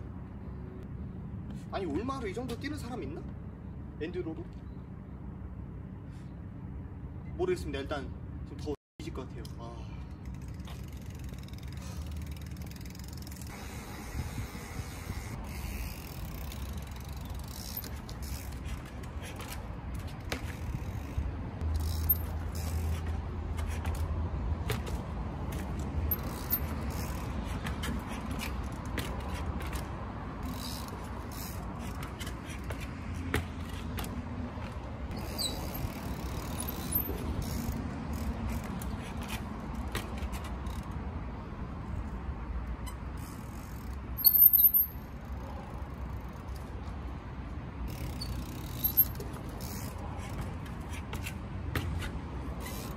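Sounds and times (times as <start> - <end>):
bike clicks and knocks: 9.4 - 13.5, 15.6 - 41.1, 47.9 - 52.9.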